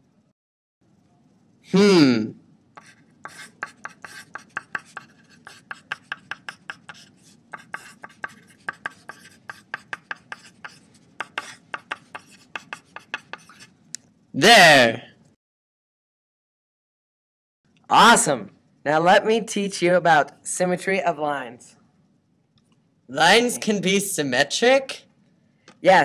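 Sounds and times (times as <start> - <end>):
faint low hum: 0.0 - 15.3.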